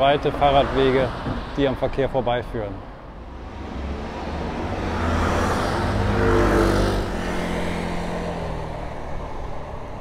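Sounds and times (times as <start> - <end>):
car driving past: 3.2 - 9.4.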